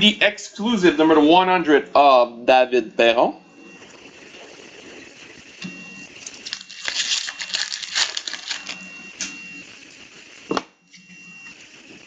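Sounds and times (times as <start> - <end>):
foil wrapper ripping: 6.2 - 8.8
foil wrapper crinkling: 6.2 - 8.9
cards being handled: 6.4 - 8.8.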